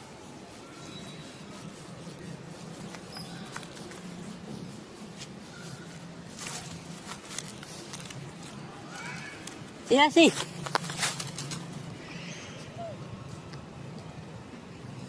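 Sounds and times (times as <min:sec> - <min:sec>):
faint squeaks or chirps: 0:00.0 - 0:04.8, 0:05.4 - 0:09.8, 0:11.0 - 0:13.5
faint rustling: 0:00.0 - 0:15.0.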